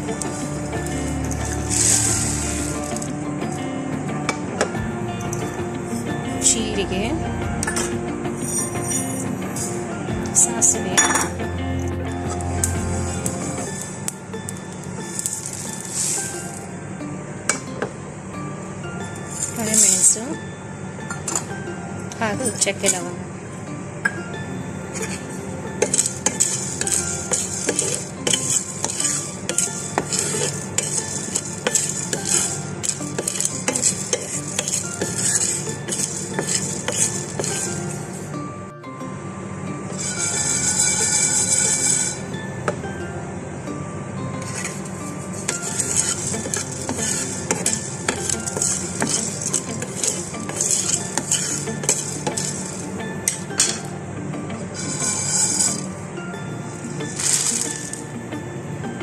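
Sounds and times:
spices rattling in dry pan: 0:00.1 - 0:03.1, 0:14.5 - 0:16.5, 0:25.8 - 0:38.3, 0:44.4 - 0:53.8, 0:54.8 - 0:55.9, 0:57.1 - 0:58.0.

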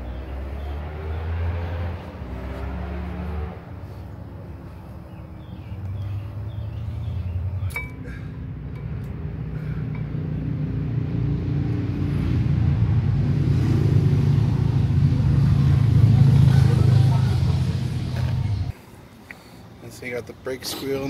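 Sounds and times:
vehicle engine rumble: 0:00.0 - 0:20.2
light metallic clinks: 0:07.6 - 0:09.2.

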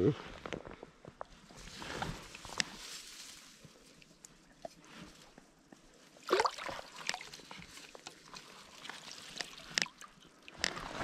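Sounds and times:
shallow river water splashing: 0:05.8 - 0:11.0.

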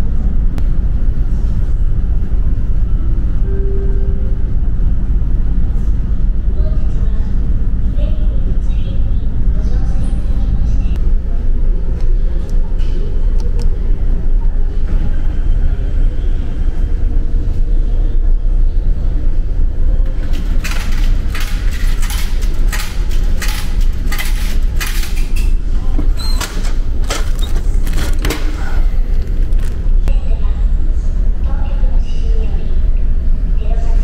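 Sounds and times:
low engine rumble: 0:00.0 - 0:34.0
vending machine clicks and knocks: 0:20.1 - 0:29.6.

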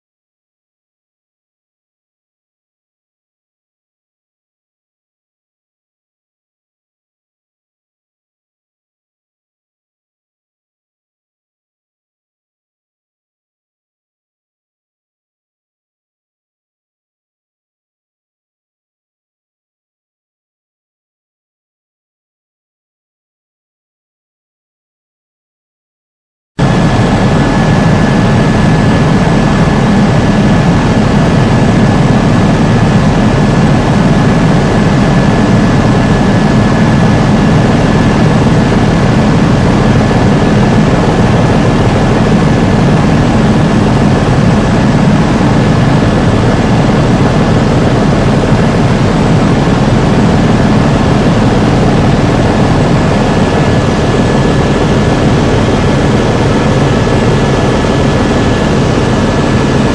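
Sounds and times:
helicopter low drone: 0:26.6 - 0:59.9
high whine: 0:26.6 - 0:59.9.

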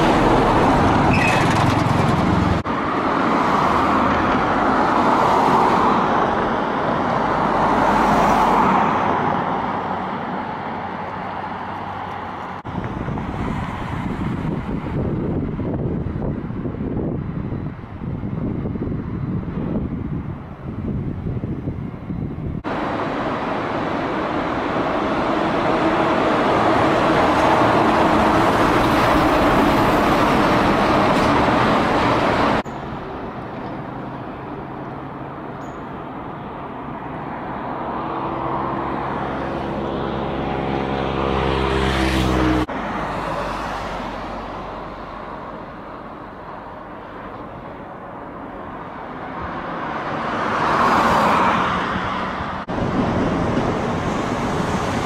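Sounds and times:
traffic roar: 0:00.0 - 0:55.0
vehicle passing: 0:22.1 - 0:46.7.

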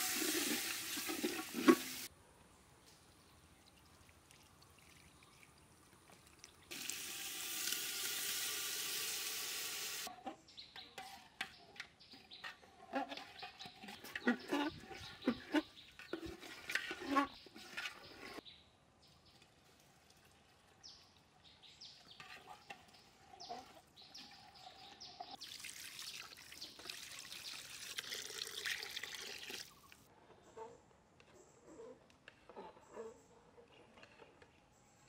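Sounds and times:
water pouring and splashing: 0:00.0 - 0:02.1, 0:03.5 - 0:10.1, 0:22.4 - 0:30.0
metal ladle scraping a pot: 0:12.2 - 0:18.4, 0:22.1 - 0:25.0.

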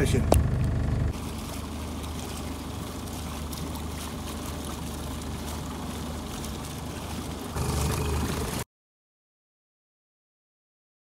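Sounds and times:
outboard motor running: 0:00.0 - 0:08.6
water rushing past: 0:00.0 - 0:08.6.

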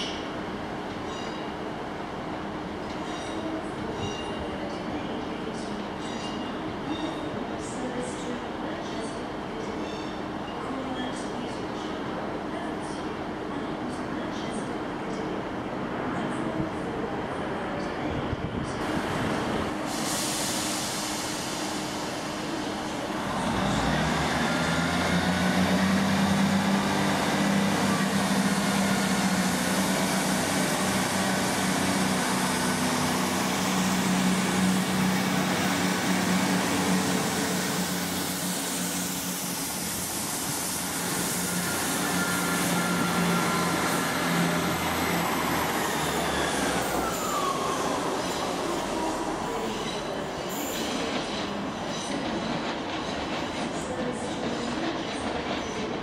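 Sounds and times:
diesel train engine drone: 0:18.4 - 0:56.0
falling squeal: 0:41.4 - 0:51.1.

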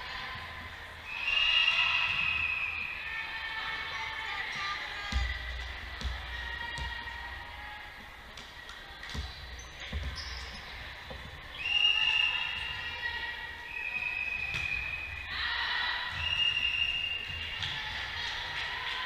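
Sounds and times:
volleyball hits echoing: 0:04.4 - 0:07.6, 0:14.3 - 0:15.3.

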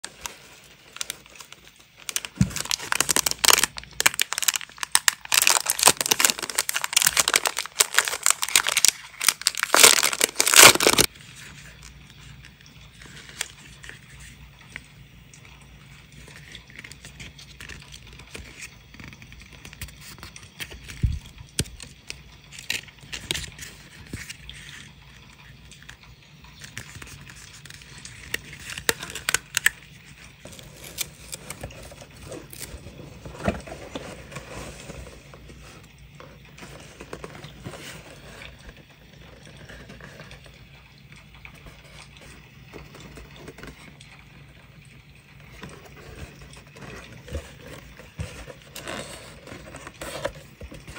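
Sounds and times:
paper rustling and scraping: 0:00.0 - 0:11.7, 0:30.4 - 0:38.8, 0:45.6 - 0:50.9.

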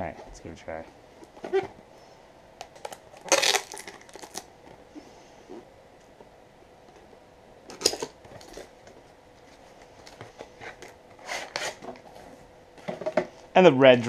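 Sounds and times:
packaging clicks and scrapes: 0:07.7 - 0:08.7, 0:09.5 - 0:12.1.

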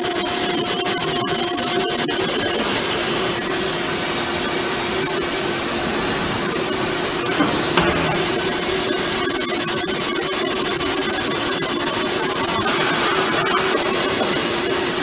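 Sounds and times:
steady hiss: 0:02.6 - 0:09.8
short knocks: 0:05.7 - 0:09.5.

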